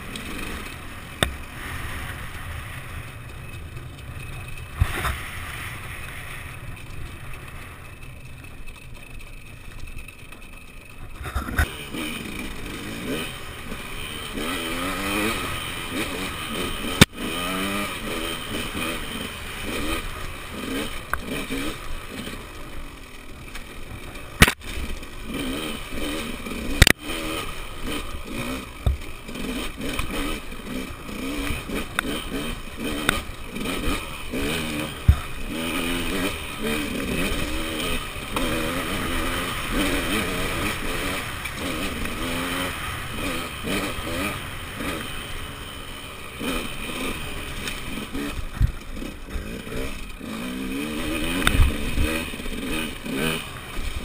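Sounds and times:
dirt bike engine revving: 0.0 - 54.0.

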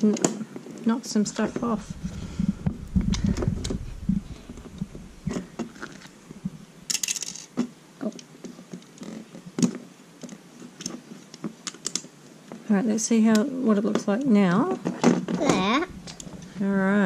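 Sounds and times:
dull bumps: 1.2 - 6.6.

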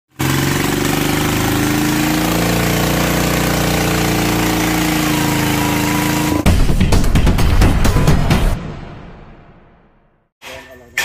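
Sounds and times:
diesel engine running steadily: 0.1 - 6.5.

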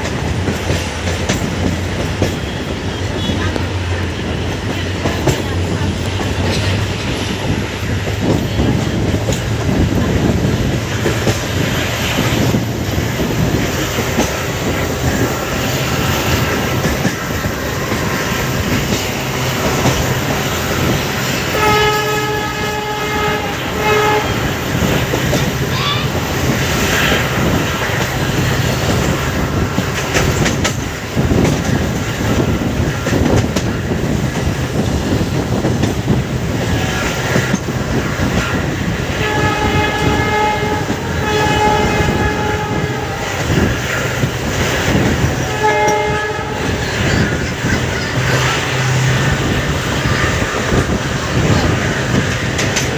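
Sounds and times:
train wheels on rails: 0.0 - 52.9
diesel locomotive horn: 1.9 - 28.7, 38.3 - 52.7.

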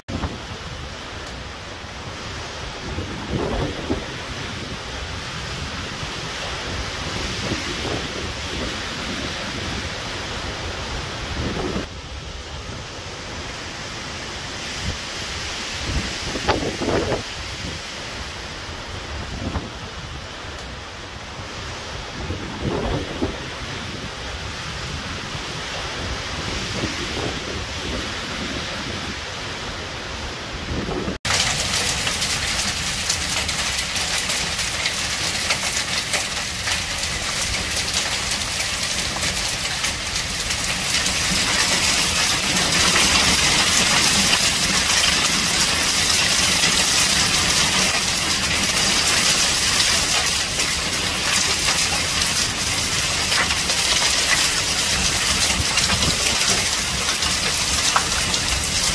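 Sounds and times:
rain and hail on concrete: 0.1 - 11.9, 31.2 - 58.9
wind buffeting microphone: 2.1 - 12.9, 14.7 - 20.4, 21.2 - 29.6, 30.2 - 58.9.

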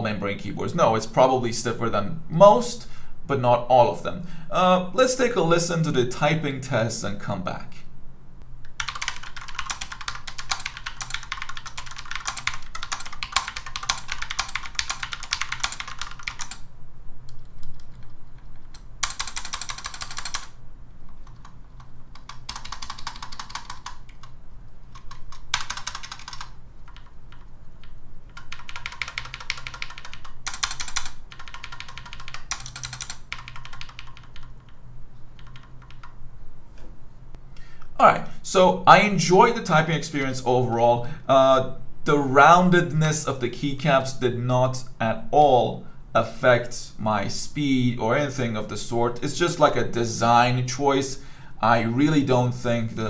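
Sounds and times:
mechanical keyboard typing: 8.8 - 16.7, 17.3 - 36.2.

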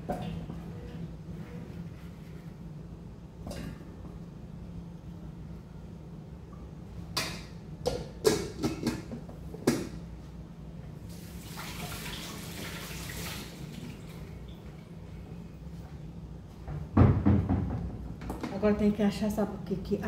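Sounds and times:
faucet running water: 11.1 - 14.7
knocks and clatters at sink: 17.0 - 18.6.

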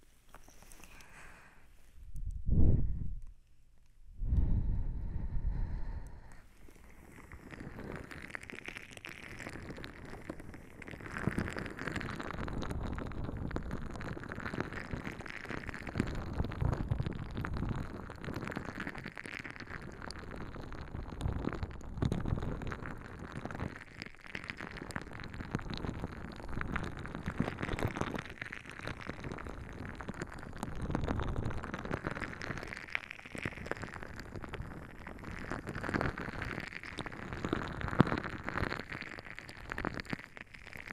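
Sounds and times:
clothing rubbing on microphone: 0.0 - 3.1.

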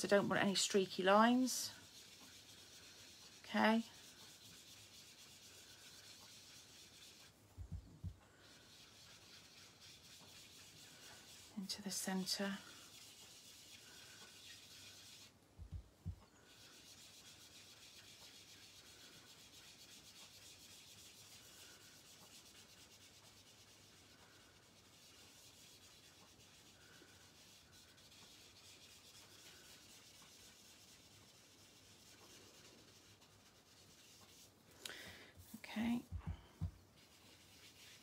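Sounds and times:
ink dauber rubbing paper: 0.0 - 34.8, 35.4 - 38.0
soft low thumps: 36.1 - 36.8.

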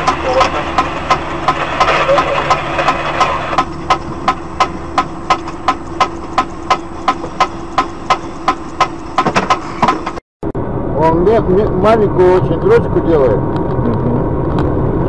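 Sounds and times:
fast even ticking: 0.0 - 9.3
truck engine idling: 0.0 - 13.2
passing truck: 0.0 - 15.0.

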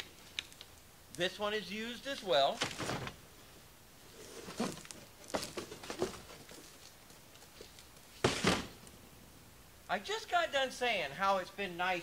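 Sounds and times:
cardboard box rustling and scraping: 4.1 - 6.8.

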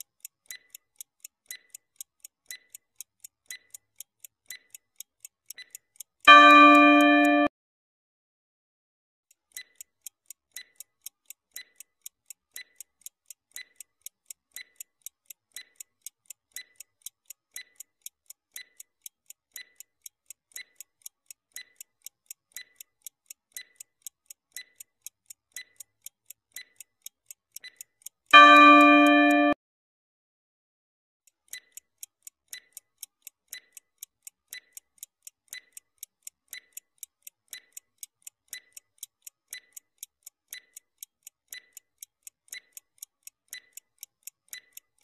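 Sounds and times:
clock ticking: 0.0 - 7.5, 9.3 - 29.6, 31.3 - 45.0.

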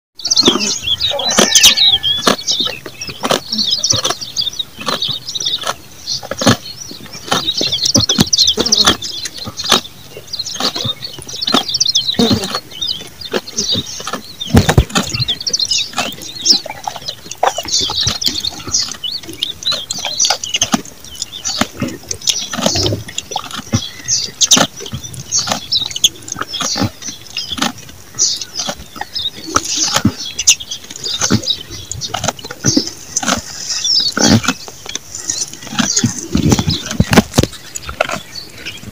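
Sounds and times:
goat chewing: 0.2 - 38.9.

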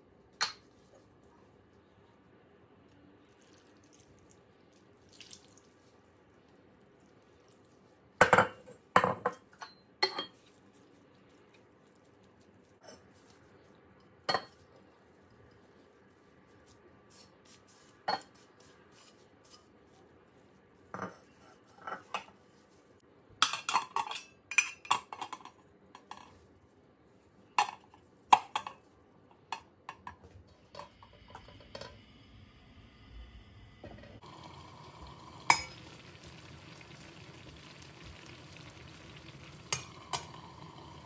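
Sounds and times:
metal pot and lid clinking: 35.4 - 36.4.

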